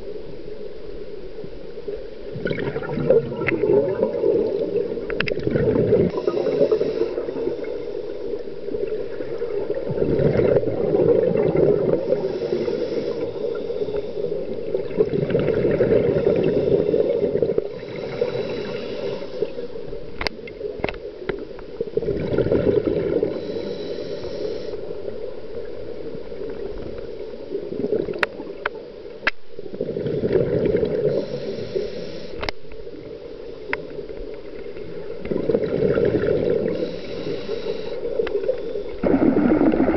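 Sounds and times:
bubbles gurgling: 2.3 - 7.6, 8.8 - 12.6, 14.4 - 18.8, 21.9 - 23.4, 27.5 - 28.6, 29.6 - 31.2, 34.7 - 36.9, 39.0 - 39.9
regulator inhale hiss: 6.1 - 8.8, 11.9 - 14.7, 16.0 - 20.2, 23.2 - 25.6, 30.9 - 32.8, 36.5 - 39.0.

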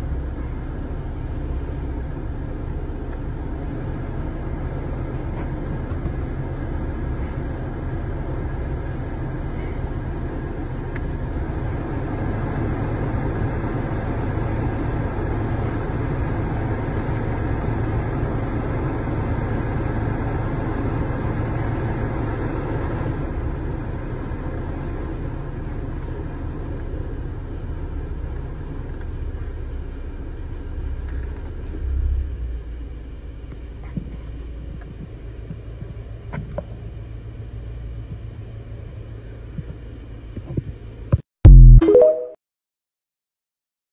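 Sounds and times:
heater blower fan rushing air: 0.0 - 41.1.

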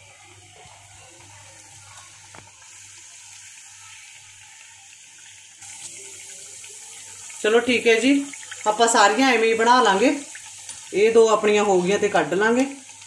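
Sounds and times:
dough sizzling in hot oil: 0.0 - 13.0.

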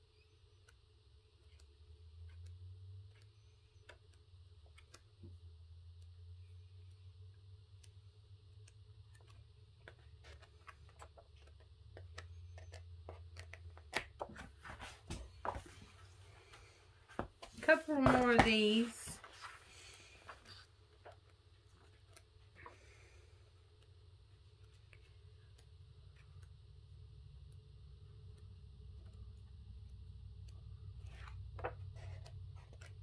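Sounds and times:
magazine pages turning: 9.8 - 16.0, 17.7 - 22.8.

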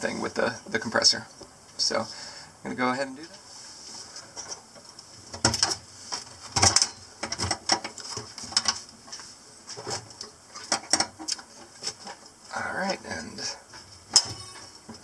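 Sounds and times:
metal clunks and scrapes: 13.8 - 15.0.

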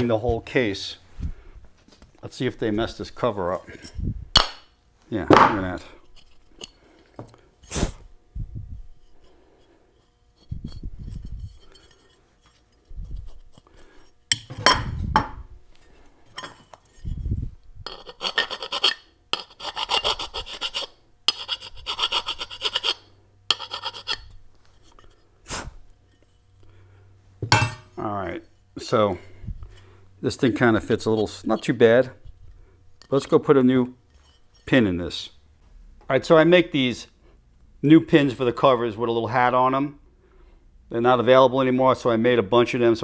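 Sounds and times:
knocks and thumps on bench: 14.4 - 15.4
hand file rasping on metal: 17.9 - 25.1.

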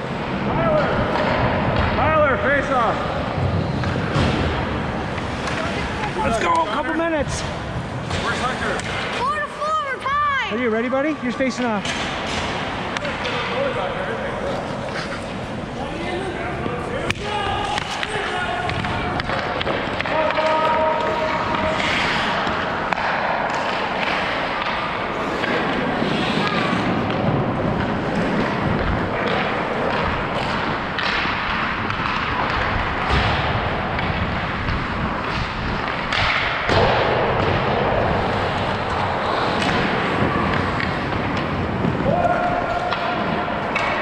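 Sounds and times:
skate blades scraping ice: 3.0 - 9.6, 11.8 - 44.0
hockey stick hitting puck: 8.0 - 9.4, 11.5 - 13.9, 16.9 - 44.0.

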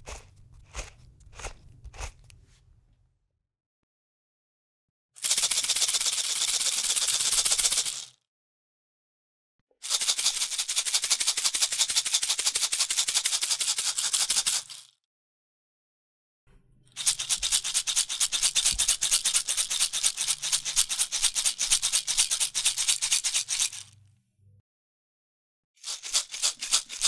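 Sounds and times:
shaker grains rattling: 0.0 - 2.3, 5.2 - 8.2, 9.8 - 14.9, 16.9 - 24.0, 25.8 - 27.0.

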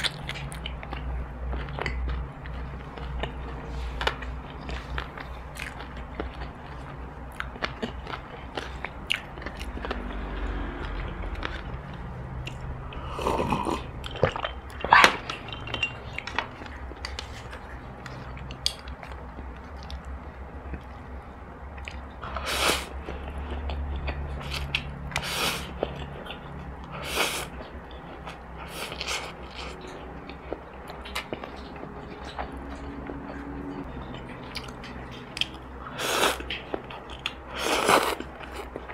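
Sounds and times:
chewing noodles: 21.7 - 38.9.

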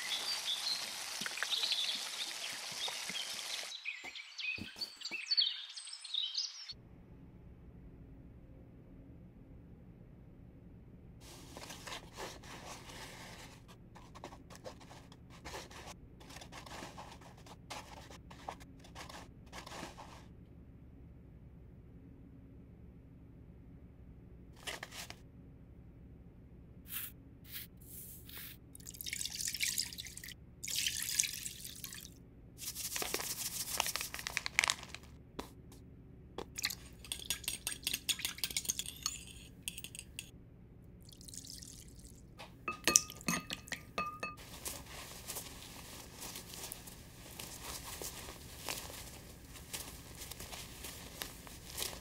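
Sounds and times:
whisk beating batter: 36.8 - 38.9
dough squelching by hand: 43.6 - 52.0.

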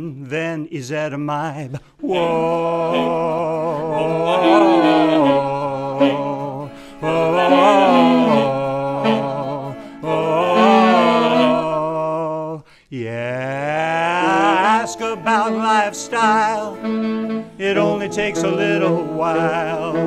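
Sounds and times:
held lower backing notes: 2.0 - 12.1, 14.1 - 20.0
tenor saxophone melody: 2.4 - 12.0, 14.2 - 20.0.

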